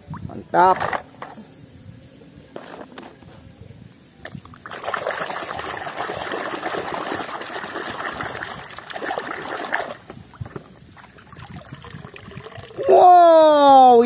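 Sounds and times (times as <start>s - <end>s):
water sloshing in a plastic tub: 4.3s - 12.8s.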